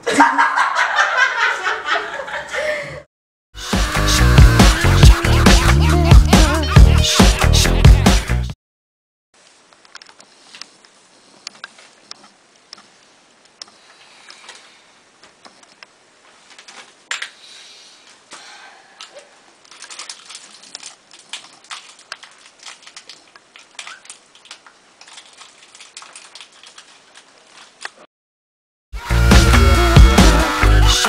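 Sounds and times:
plastic bag crinkling: 0:19.0 - 0:28.0.

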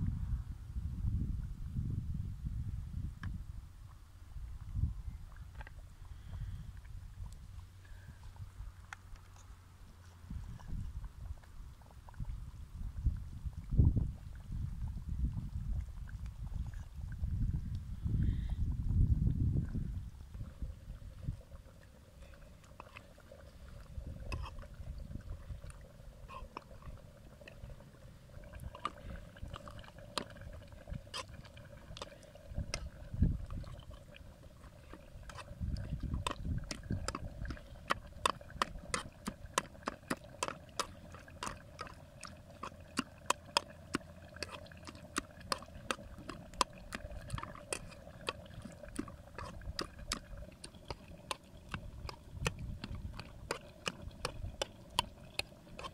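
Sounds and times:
food squashing: 0:21.6 - 0:55.9.

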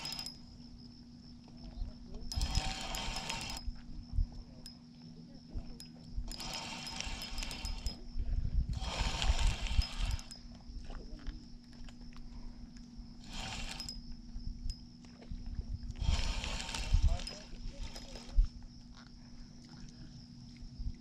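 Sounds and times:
spinning reel whirring: 0:00.0 - 0:00.6, 0:02.2 - 0:03.8, 0:05.7 - 0:08.1, 0:08.7 - 0:10.5, 0:13.2 - 0:14.1, 0:16.0 - 0:18.5.

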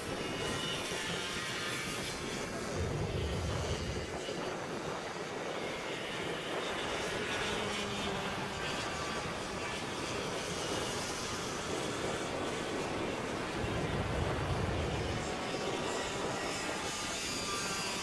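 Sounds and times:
kart engines buzzing: 0:05.5 - 0:18.0.

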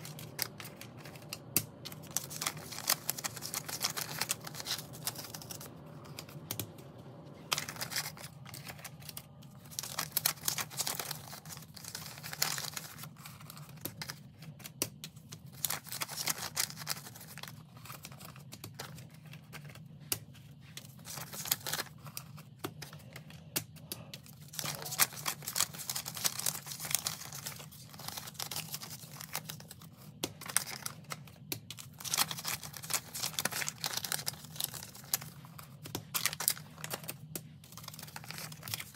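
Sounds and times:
banknotes rustling and crinkling: 0:00.0 - 0:38.9
faint low hum: 0:00.0 - 0:38.9.

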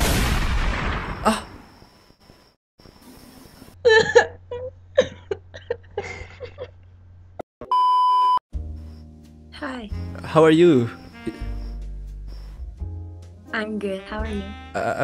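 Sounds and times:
censor beep: 0:07.6 - 0:08.4
music: 0:08.5 - 0:15.0
person making broken vocal sounds: 0:14.7 - 0:15.0.

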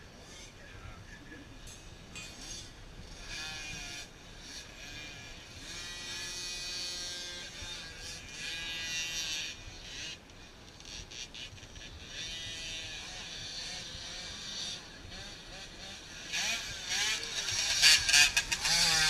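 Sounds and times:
motocross bike engines buzzing: 0:00.0 - 0:19.0.

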